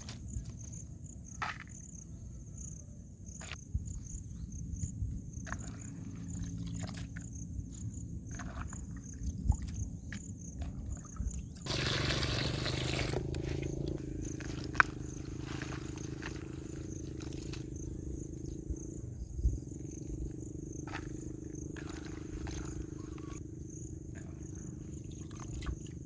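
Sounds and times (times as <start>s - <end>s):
hands sloshing water in a bowl: 8.3s - 14.9s, 20.8s - 23.4s, 25.0s - 26.0s
water trickling and dripping: 10.6s - 14.0s.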